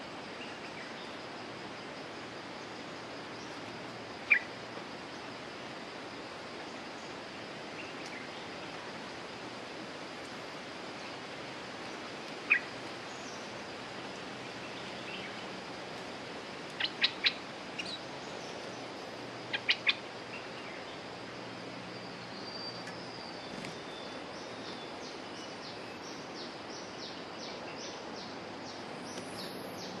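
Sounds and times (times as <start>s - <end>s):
background hiss: 0.0s - 30.0s
bulbul calls: 4.3s - 4.5s, 12.4s - 13.4s, 16.8s - 18.5s, 19.5s - 20.8s.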